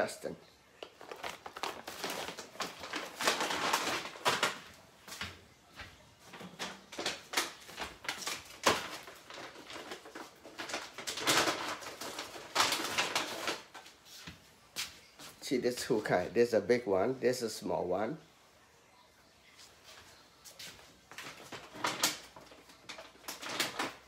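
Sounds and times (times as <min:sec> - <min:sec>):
plastic bag crinkling: 0:00.8 - 0:04.8, 0:06.3 - 0:14.0, 0:21.0 - 0:24.0.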